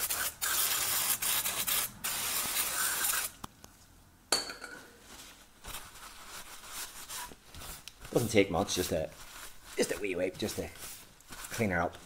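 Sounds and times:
aerosol spray can hissing: 0.0 - 3.3.

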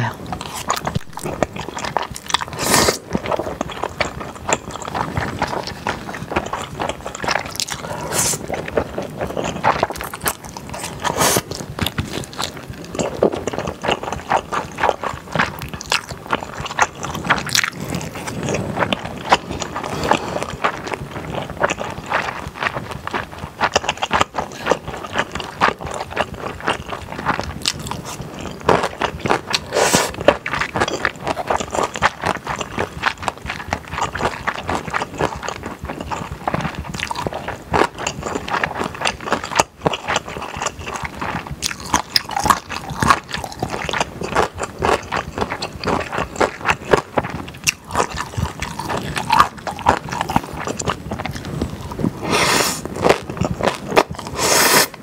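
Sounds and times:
slurping noodles: 0.0 - 22.4, 27.8 - 32.0, 47.7 - 55.0
chewing: 0.0 - 55.0.

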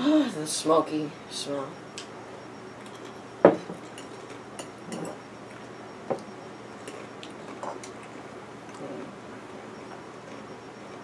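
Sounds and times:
glass bottle knocking on table: 3.4 - 3.8.

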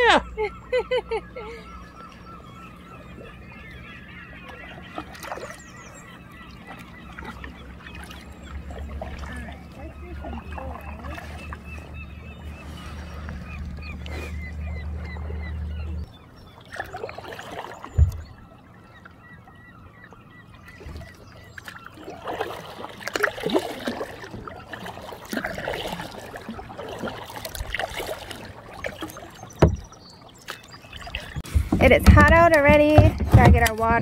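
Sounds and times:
kayak paddles splashing in water: 4.3 - 19.3, 20.6 - 34.0
water dripping off paddle blades: 4.4 - 5.8, 6.4 - 12.0, 20.8 - 34.0.

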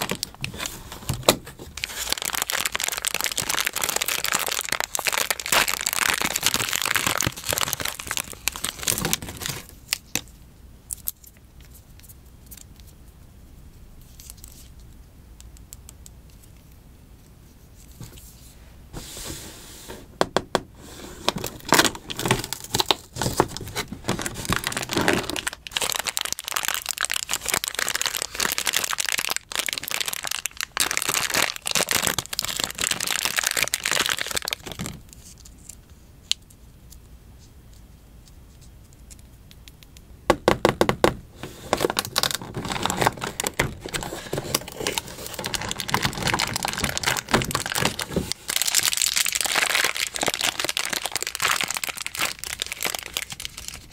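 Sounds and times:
plastic wrapper crinkling: 0.0 - 10.3, 21.2 - 36.5, 41.4 - 53.9.

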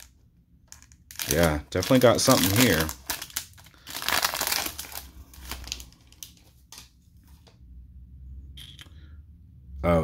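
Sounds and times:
foil wrapper crinkling and tearing: 1.1 - 6.9.

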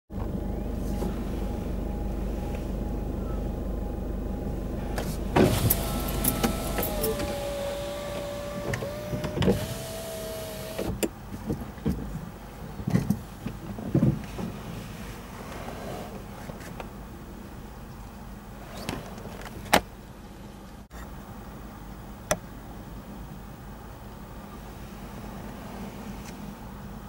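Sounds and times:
car engine idling: 0.1 - 11.3
electric car window motor whine: 5.4 - 11.0.

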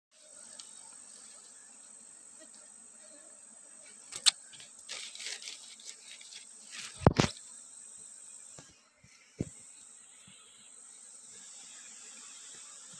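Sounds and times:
rustling and handling noise: 4.1 - 7.4
high-pitched insect drone: 4.1 - 12.9.

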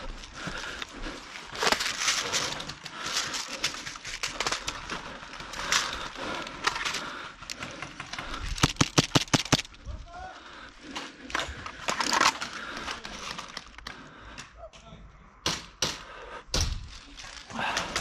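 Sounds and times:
footsteps and gear noise: 0.0 - 9.8.

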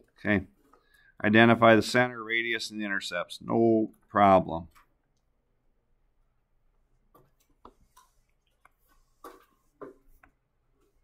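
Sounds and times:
faint computer clicks and taps: 7.1 - 10.9.

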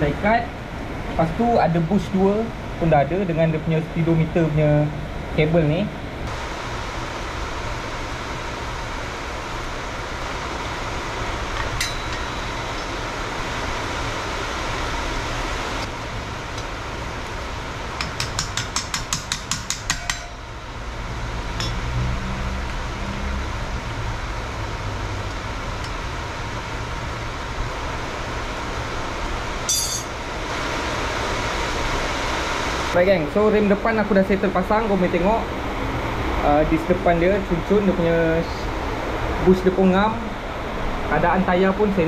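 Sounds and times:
metal tool clinks: 29.7 - 30.1.

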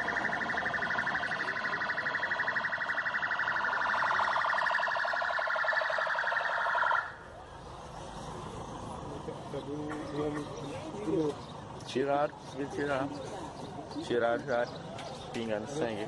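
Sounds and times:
police siren pulsing: 0.0 - 7.3.

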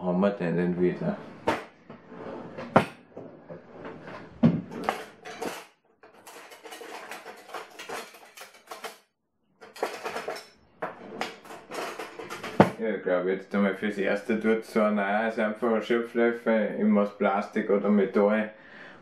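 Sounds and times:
kitchen utensils and pots clattering: 1.5 - 9.0, 9.6 - 12.8.

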